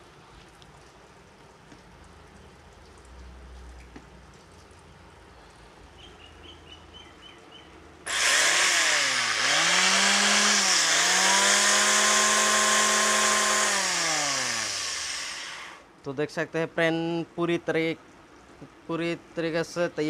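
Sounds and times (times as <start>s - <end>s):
electric planer motor whining: 8.1s - 15.8s.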